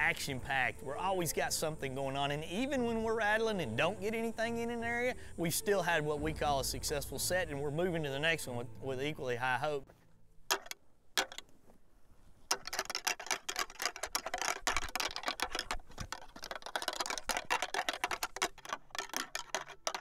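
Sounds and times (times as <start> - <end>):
antlers clattering together: 10.5 - 11.6, 12.5 - 20.0.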